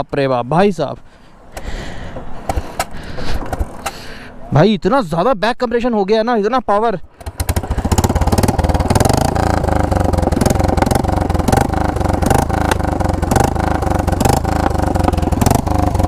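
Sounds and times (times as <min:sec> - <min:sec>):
motorcycle engine idling: 0:07.2 - 0:16.0.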